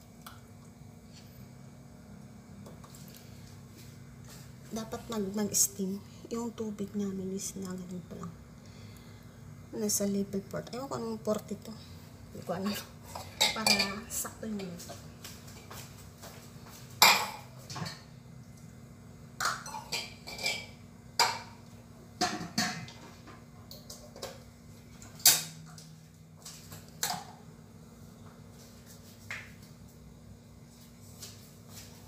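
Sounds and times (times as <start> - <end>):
low steady hum: 0.0 - 32.0
clinks of pots and dishes: 13.1 - 14.1, 17.0 - 18.1, 19.4 - 21.6, 22.2 - 23.0.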